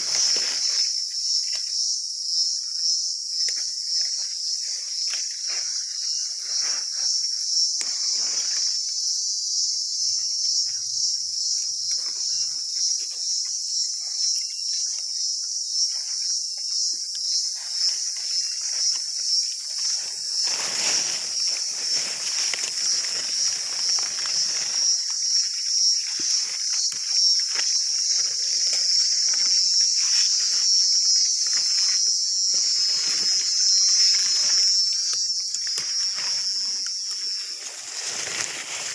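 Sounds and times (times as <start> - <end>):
leaves and stems rustling: 0.0 - 1.9, 3.4 - 8.9, 17.4 - 38.9
insects chirring: 0.0 - 38.9.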